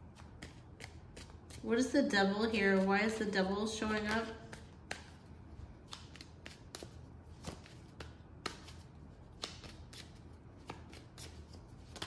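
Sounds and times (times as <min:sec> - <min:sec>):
cards being shuffled: 0:00.0 - 0:01.7, 0:03.8 - 0:12.0.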